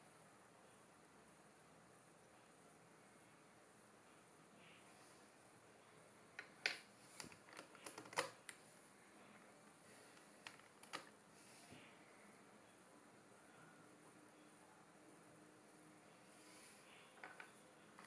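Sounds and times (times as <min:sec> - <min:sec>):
plastic puzzle pieces clicking: 0:06.4 - 0:08.6, 0:10.2 - 0:11.1.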